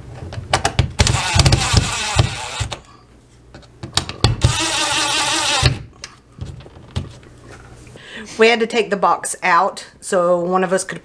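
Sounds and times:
impact driver whirring: 1.0s - 2.9s, 4.2s - 5.9s.

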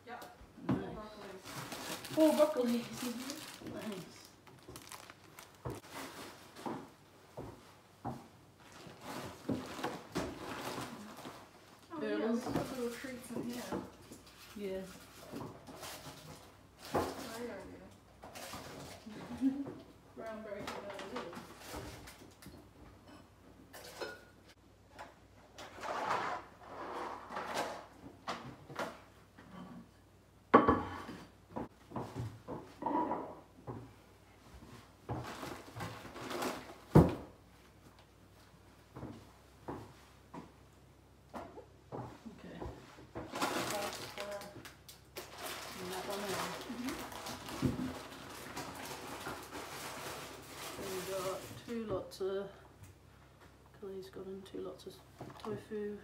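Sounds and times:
plastic bags rustling: 1.0s - 7.1s, 8.5s - 19.6s, 35.0s - 37.0s, 43.1s - 51.8s
packets rustling: 1.2s - 6.6s, 43.3s - 51.7s.

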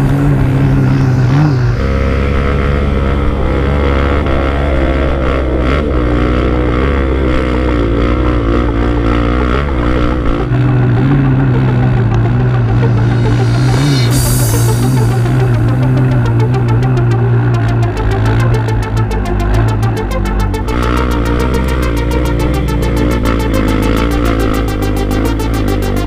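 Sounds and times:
dirt bike engine running: 0.0s - 26.0s.

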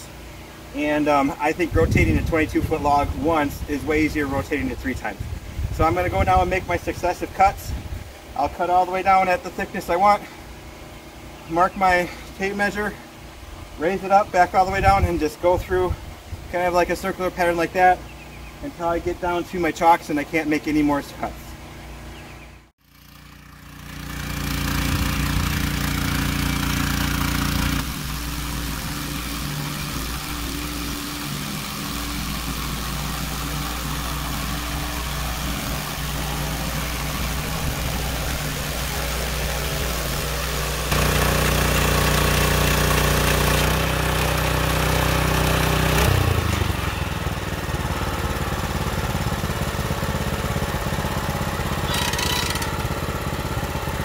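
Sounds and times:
sawmill engine running: 22.8s - 54.0s.

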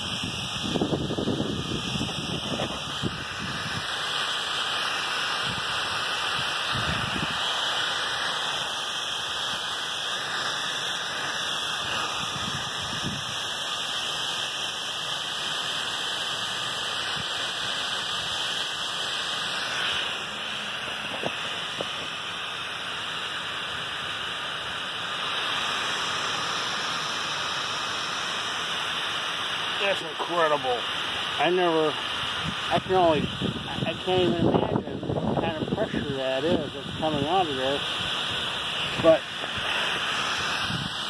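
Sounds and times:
air hissing out of well cap: 0.0s - 41.0s.

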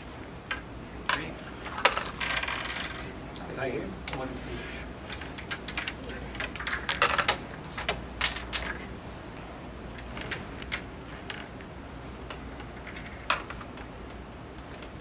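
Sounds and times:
wooden discs clicking: 5.0s - 8.9s, 9.9s - 15.0s.

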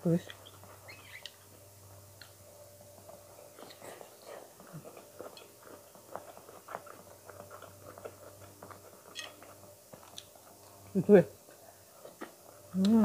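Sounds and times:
low steady hum: 0.0s - 13.0s
person chewing food: 3.1s - 10.8s.

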